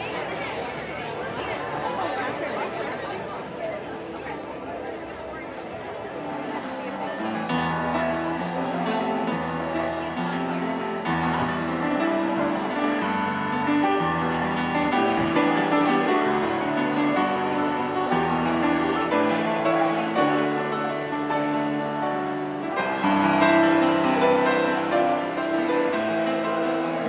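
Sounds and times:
piano slow held chords: 6.8s - 27.0s.

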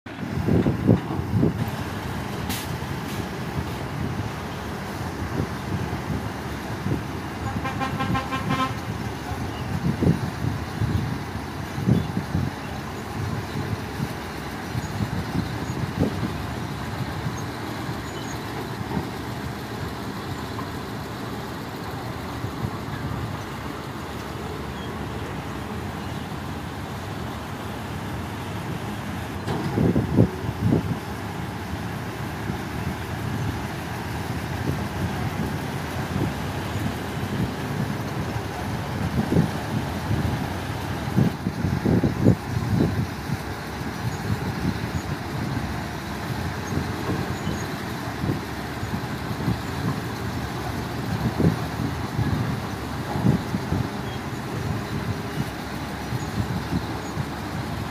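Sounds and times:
heavy diesel machinery rumbling: 0.1s - 57.9s.

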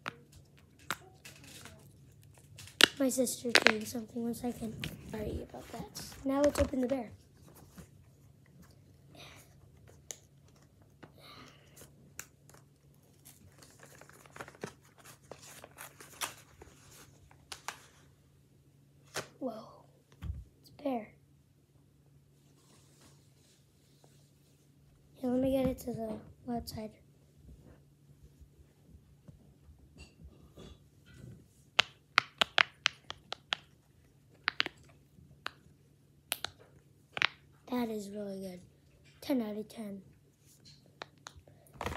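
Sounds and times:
packaging crinkling and tearing: 12.2s - 17.9s.

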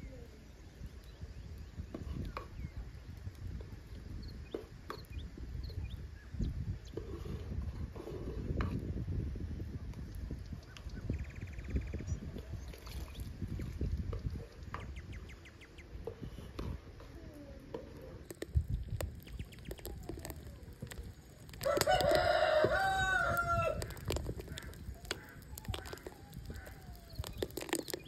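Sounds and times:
rooster crowing: 21.6s - 23.8s.

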